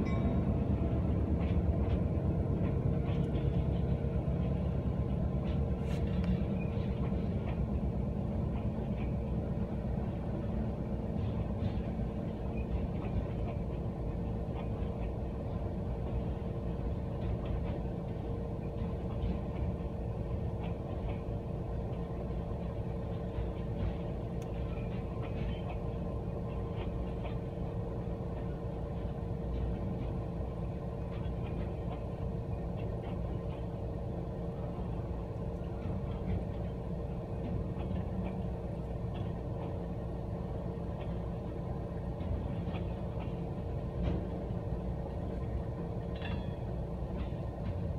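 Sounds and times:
freight train rumbling past: 0:00.0 - 0:47.9
faint clicks and squeaks: 0:46.1 - 0:47.4.

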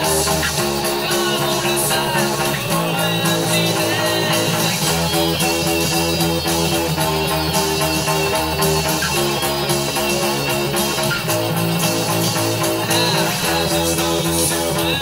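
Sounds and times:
bass guitar plucked: 0:00.0 - 0:15.0
rock track with strummed guitars: 0:00.0 - 0:15.0.

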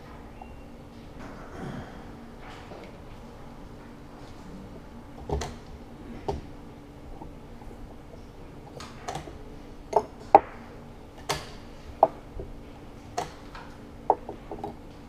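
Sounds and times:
chess pieces knocking on board: 0:10.0 - 0:12.3.

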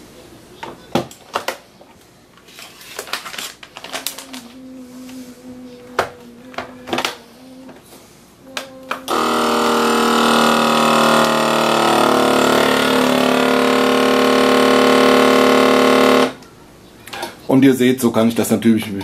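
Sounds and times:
vacuum pump humming: 0:08.5 - 0:16.5.

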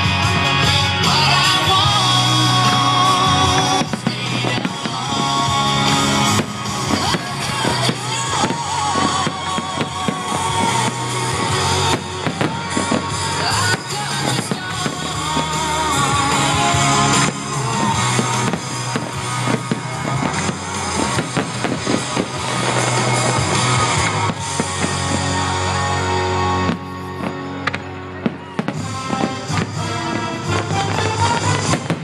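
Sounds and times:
fireworks bursting and crackling: 0:00.0 - 0:32.0
music playing: 0:00.0 - 0:32.0.

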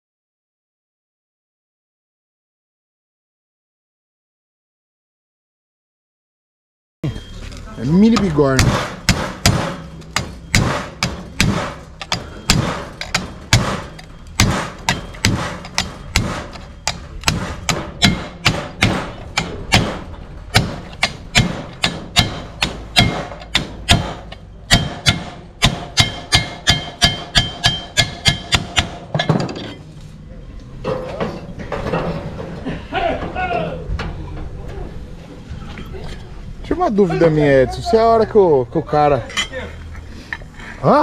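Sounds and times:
hammering on sheet metal: 0:08.1 - 0:29.4.

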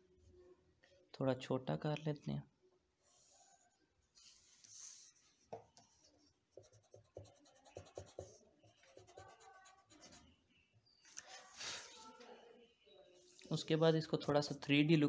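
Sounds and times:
pencil scratching on paper: 0:04.2 - 0:10.4.

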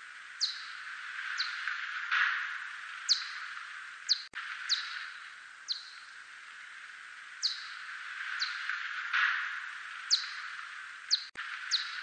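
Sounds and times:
steady hiss: 0:00.0 - 0:12.0
bat echolocation chirps: 0:00.4 - 0:01.8, 0:02.5 - 0:06.1, 0:07.4 - 0:08.8, 0:09.4 - 0:12.0.

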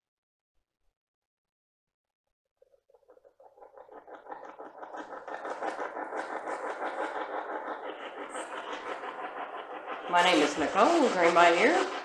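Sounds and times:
choppy radio static: 0:10.0 - 0:12.0.

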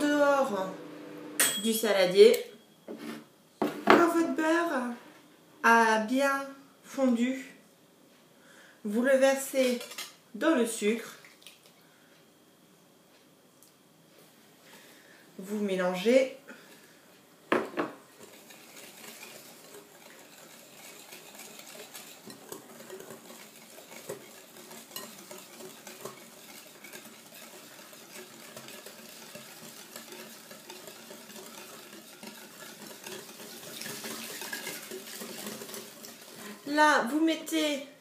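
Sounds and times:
whisk swishing in bowl: 0:18.1 - 0:36.8
whisk clinking against glass: 0:18.2 - 0:35.9.

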